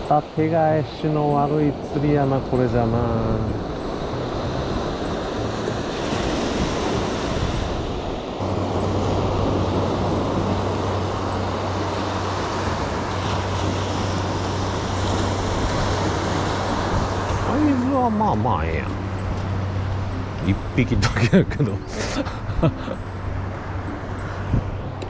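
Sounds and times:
small waves breaking on sand: 0:00.0 - 0:18.9.

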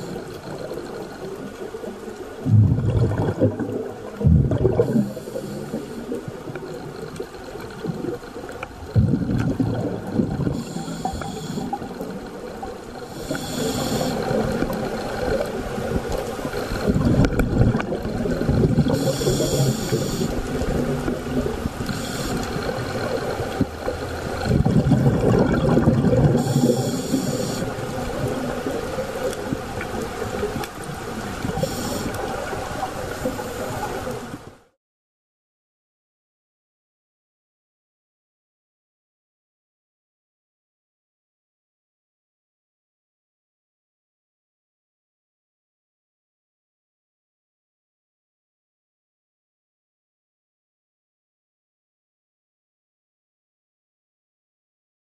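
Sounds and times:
underwater rumble: 0:00.0 - 0:34.7
bubbling exhalations: 0:02.4 - 0:06.8, 0:08.8 - 0:12.0, 0:13.0 - 0:30.4
regulator inhalation hiss: 0:04.9 - 0:06.2, 0:10.6 - 0:11.9, 0:13.0 - 0:14.6, 0:18.9 - 0:20.6, 0:21.8 - 0:23.1, 0:26.4 - 0:27.9, 0:31.4 - 0:32.4.

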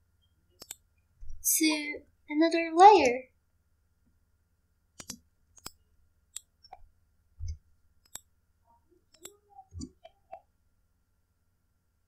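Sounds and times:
mouse and keyboard clicks: 0:00.6 - 0:00.8, 0:05.0 - 0:06.8, 0:07.5 - 0:08.3, 0:09.1 - 0:10.5.

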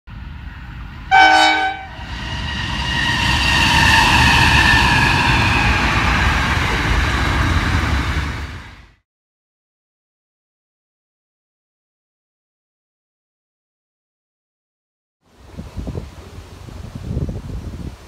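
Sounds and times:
locomotive engine drone: 0:00.1 - 0:09.0
train wheel rumble: 0:00.1 - 0:09.0
locomotive horn blast: 0:01.1 - 0:02.1.

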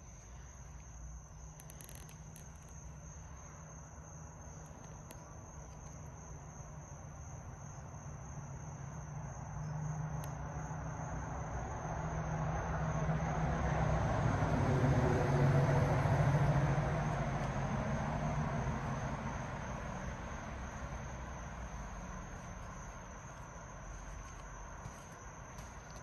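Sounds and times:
passing motor vehicle rumble: 0:09.6 - 0:26.0.

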